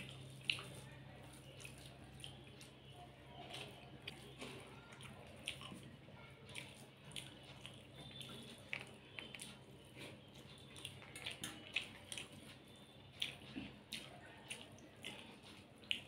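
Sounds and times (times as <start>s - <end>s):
food mixed by hand squishing: 0.0s - 16.0s
mouth smacks chewing: 0.0s - 16.0s.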